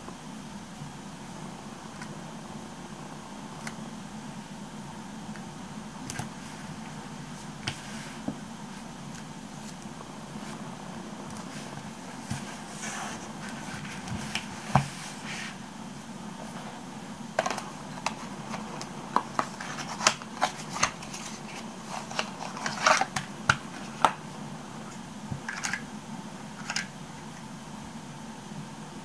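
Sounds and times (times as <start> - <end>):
paper rustling: 17.4 - 24.2.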